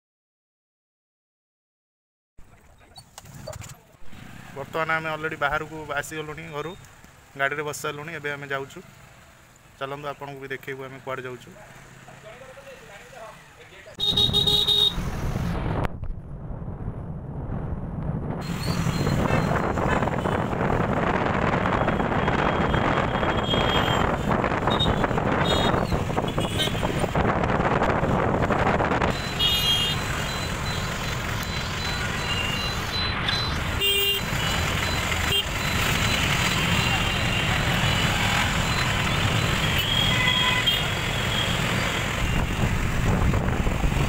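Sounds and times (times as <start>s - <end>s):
traffic engines running: 2.4s - 44.0s
wind rushing over microphone: 14.9s - 29.2s, 42.1s - 44.0s.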